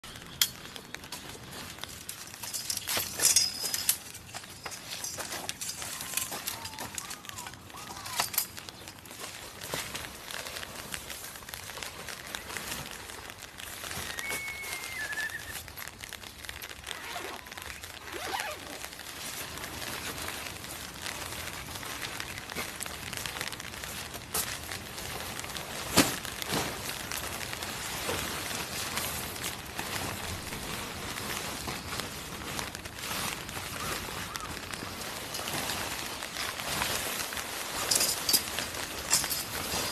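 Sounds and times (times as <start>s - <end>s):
light rain hiss: 0.0s - 39.9s
tent fabric rustling: 0.1s - 39.9s
footsteps on gravel: 19.0s - 39.9s.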